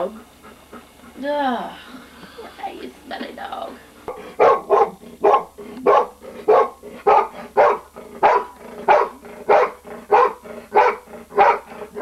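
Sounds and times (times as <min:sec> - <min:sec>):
dog barking: 0:04.1 - 0:12.0.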